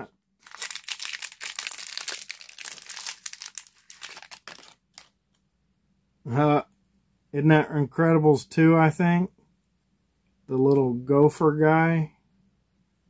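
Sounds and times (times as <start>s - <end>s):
plastic wrapper crinkling and tearing: 0.4s - 5.2s.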